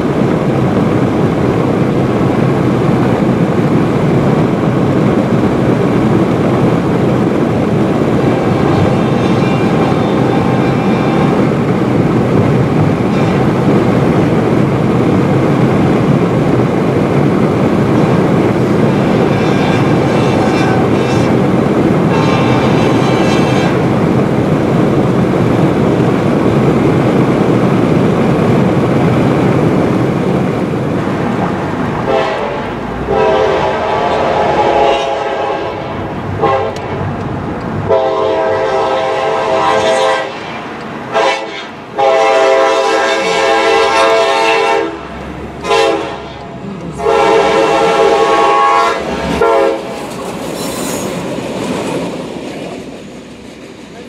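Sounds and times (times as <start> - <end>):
passing train clatter: 0.0 - 54.0
locomotive air horn blasts: 8.1 - 11.6, 13.0 - 13.5, 19.0 - 21.4, 22.0 - 23.9, 32.0 - 37.1, 37.9 - 40.5, 41.1 - 49.9.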